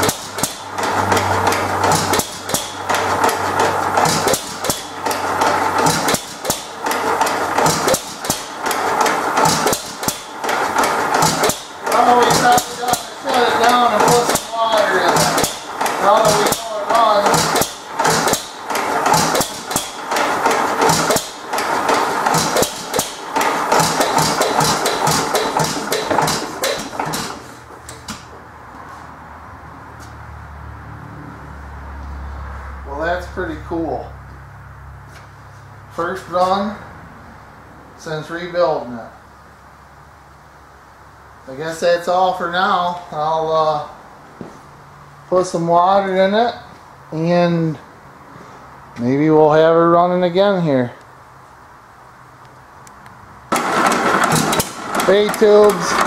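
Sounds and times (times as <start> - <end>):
gas engine knocking and clattering: 0.0 - 28.4, 53.5 - 56.0.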